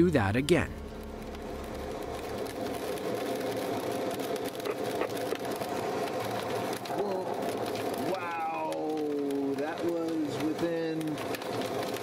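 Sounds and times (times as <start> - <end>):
buzzing hum: 0.0 - 5.0
rain on canopy: 0.0 - 12.0.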